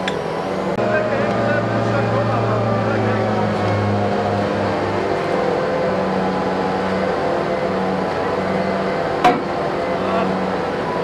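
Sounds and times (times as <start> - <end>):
diesel engine running: 0.0 - 11.0
metal clank: 9.2 - 9.5.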